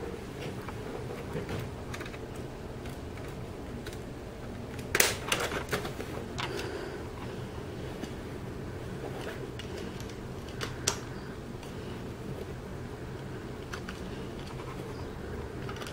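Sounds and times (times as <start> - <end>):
steady low hum: 0.0 - 15.9
plastic parts clicking and rattling: 0.4 - 7.3, 9.1 - 11.8, 13.2 - 15.9
sharp plastic clicks: 1.5 - 6.7, 9.6 - 11.8, 13.6 - 15.9.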